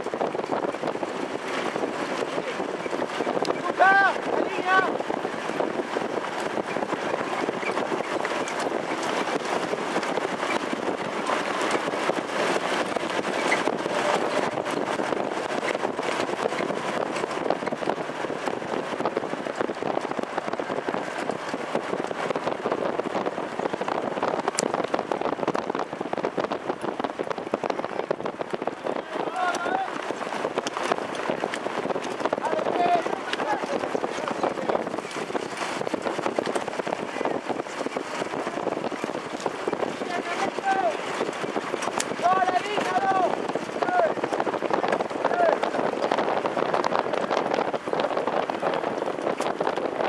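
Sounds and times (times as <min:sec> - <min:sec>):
trotting horses' hooves: 0:00.0 - 0:50.0
wheels on dirt track: 0:00.0 - 0:50.0
wind on microphone: 0:00.0 - 0:50.0.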